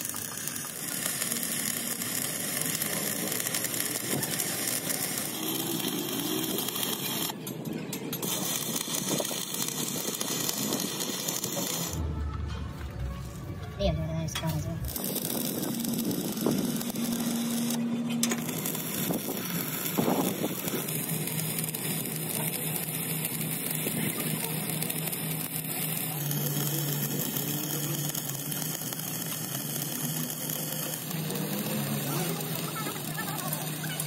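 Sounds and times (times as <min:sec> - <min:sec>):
welding arc crackling: 0:00.0 - 0:12.0, 0:14.3 - 0:34.0.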